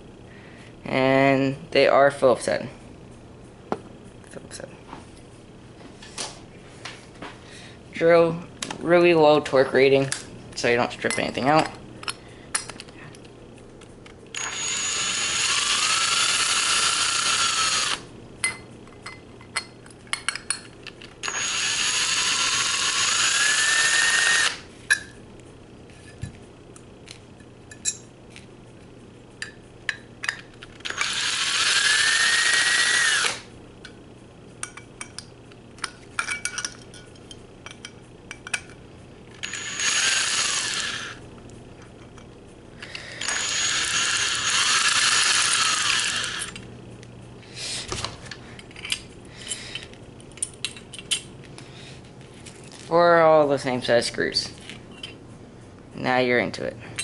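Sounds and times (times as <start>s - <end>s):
cordless drill motor whine: 14.3s - 18.1s, 21.2s - 24.7s, 30.8s - 33.5s, 39.4s - 41.2s, 42.8s - 46.6s
screws and parts clicking: 20.1s - 25.0s, 30.2s - 33.4s, 37.7s - 41.2s, 42.8s - 46.6s.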